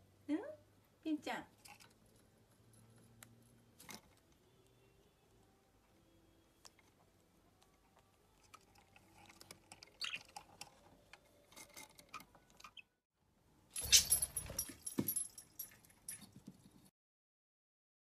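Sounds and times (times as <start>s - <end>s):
claws and beak scratching wood: 8.4s - 12.9s
rustling handling noise with knocks: 13.8s - 16.9s.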